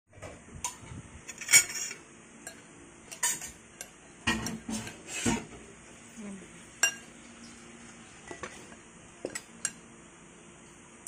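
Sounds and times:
utensils clinking on ceramic bowl: 1.3 - 5.0, 6.8 - 7.1.

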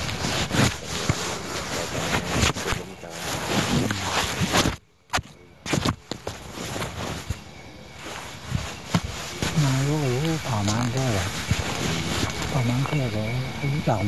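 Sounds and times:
muffled voices: 0.0 - 4.6, 9.4 - 14.0
recording hiss and rustling: 0.0 - 14.0.

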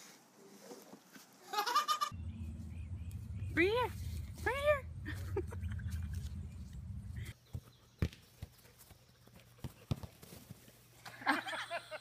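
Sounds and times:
low rumble: 2.2 - 7.3
soccer ball being kicked: 7.4 - 10.6.

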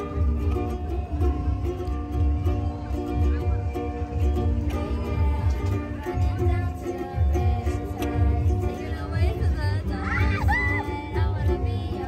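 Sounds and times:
ukulele strumming: 0.0 - 12.0
girl singing: 4.4 - 12.0.

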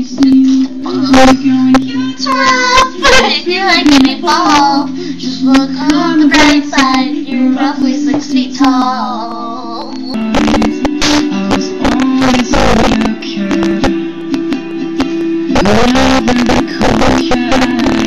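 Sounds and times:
girls singing loudly: 0.0 - 9.9
recorded pop music: 0.0 - 18.0.

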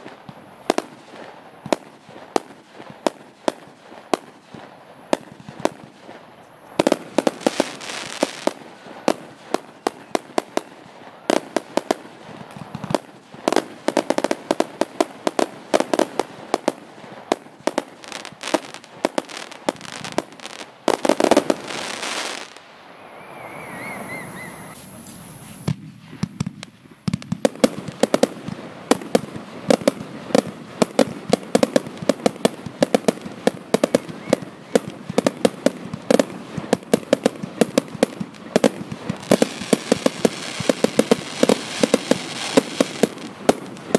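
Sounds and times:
firework volleys: 0.0 - 43.9
faint warbling whistle: 22.8 - 25.6.

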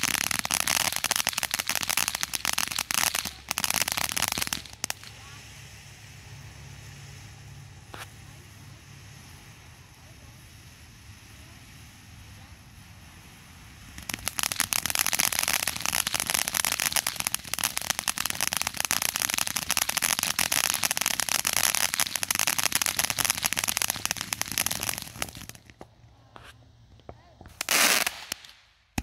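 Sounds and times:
firework fountain hissing and crackling: 0.0 - 29.0.

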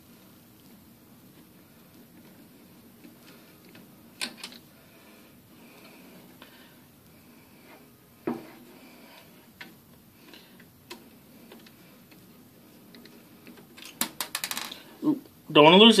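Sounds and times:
small screw bouncing on desk: 13.8 - 14.8.

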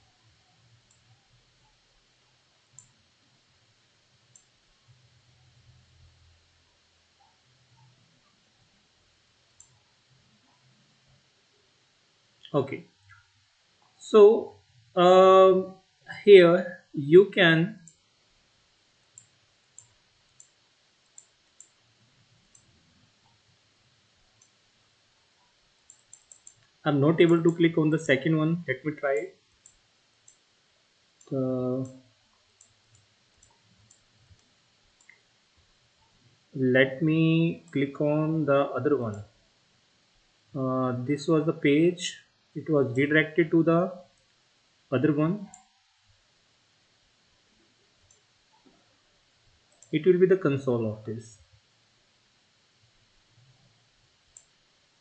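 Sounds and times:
faint low hum: 0.0 - 55.0
computer mouse clicks: 2.7 - 3.0, 4.3 - 5.0, 9.6 - 9.8, 19.1 - 21.8, 22.5 - 23.4, 25.4 - 27.6, 29.2 - 30.4, 32.6 - 35.3, 48.0 - 48.8, 49.7 - 50.0, 54.3 - 54.6
faint computer mouse clicks: 19.1 - 21.8, 25.4 - 26.7, 54.3 - 54.5.

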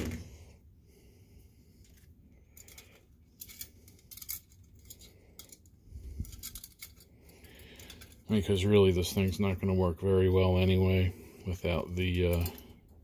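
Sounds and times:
metal parts clicking and scraping: 1.8 - 9.6, 11.8 - 13.0.

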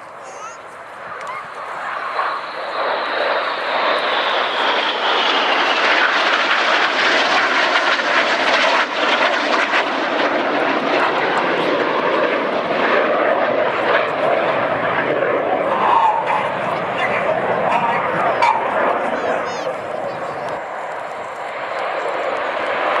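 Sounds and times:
high whine falling in pitch: 0.0 - 4.7
jets flying past: 0.0 - 23.0.

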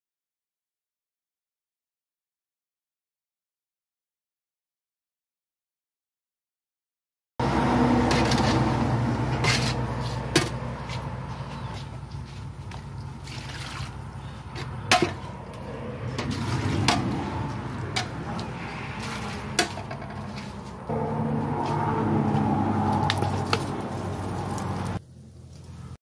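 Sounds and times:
metal ladle scraping a pot: 8.0 - 11.1, 13.2 - 20.8.

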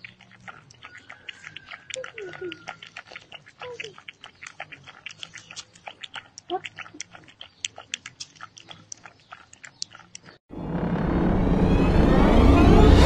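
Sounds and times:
puppy lapping liquid: 0.0 - 10.4.

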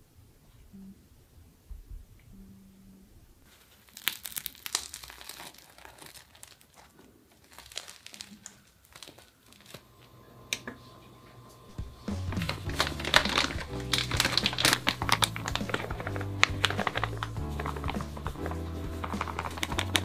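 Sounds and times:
packaging crinkling: 3.5 - 10.0, 11.8 - 20.0.

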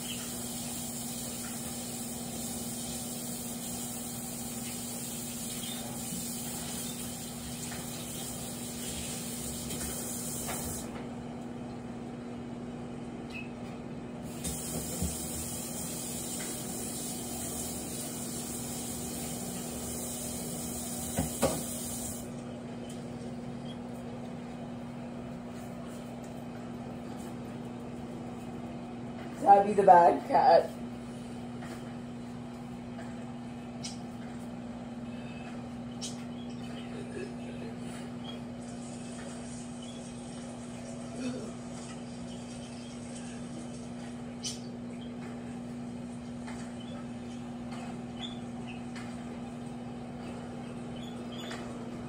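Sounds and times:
microwave oven humming: 0.0 - 52.0.

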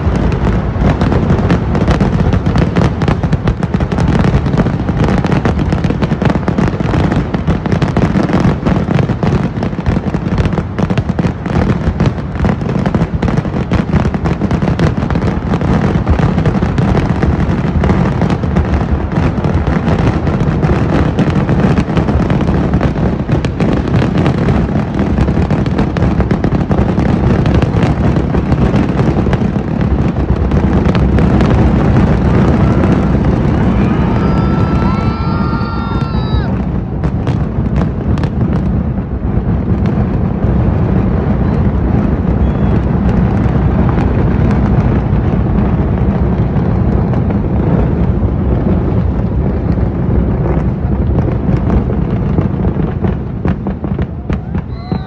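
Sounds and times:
firecracker bangs: 0.0 - 55.0.

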